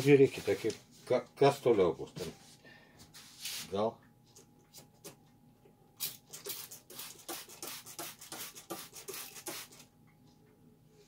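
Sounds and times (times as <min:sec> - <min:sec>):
spray bottle hissing sprays: 0:06.0 - 0:09.8.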